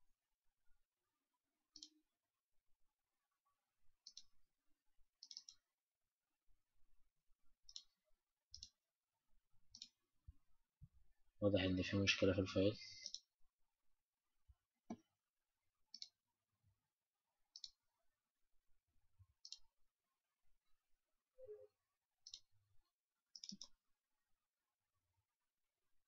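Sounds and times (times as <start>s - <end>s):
faint computer mouse clicks: 4.0s - 4.3s, 5.2s - 5.6s, 7.7s - 7.9s, 17.6s - 17.8s, 19.4s - 19.6s, 23.4s - 23.7s.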